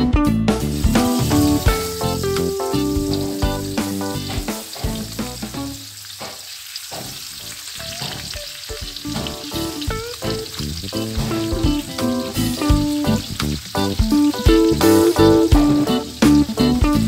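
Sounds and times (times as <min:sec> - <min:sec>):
background music: 0:00.0 - 0:05.8, 0:07.6 - 0:17.0
fish sizzling in hot oil: 0:00.6 - 0:17.0.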